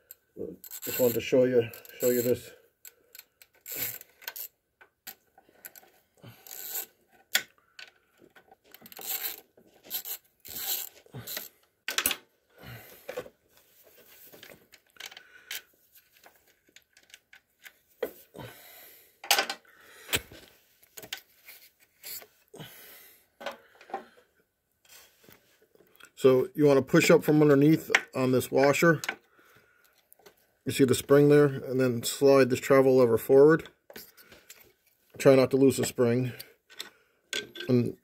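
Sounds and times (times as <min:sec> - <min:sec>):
wrench clicking and scraping on metal: 0:00.0 - 0:07.5, 0:08.7 - 0:12.0.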